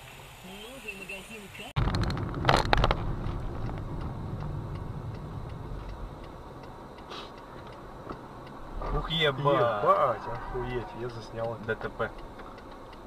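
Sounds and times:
car engine rumble: 0.0s - 13.0s
car indicator ticking: 3.1s - 13.0s.

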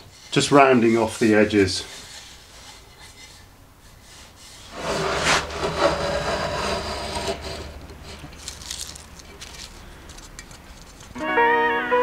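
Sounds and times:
hand plane shaving wood: 4.0s - 8.8s.

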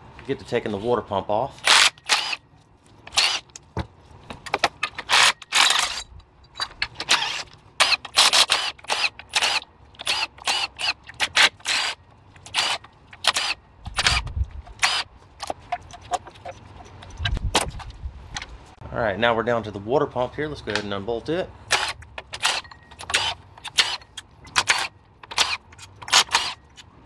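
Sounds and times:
impact tool bursts: 1.6s - 2.4s, 21.7s - 26.8s.

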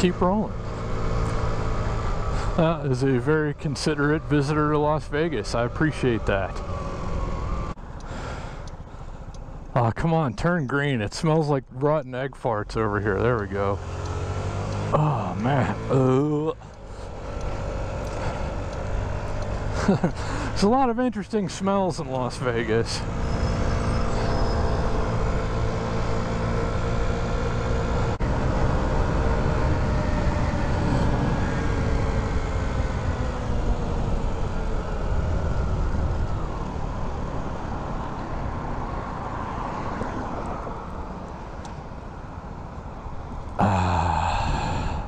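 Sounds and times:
road rumble: 0.0s - 45.0s
wind: 0.0s - 45.0s
short breathy vocal sound: 43.6s - 45.0s.

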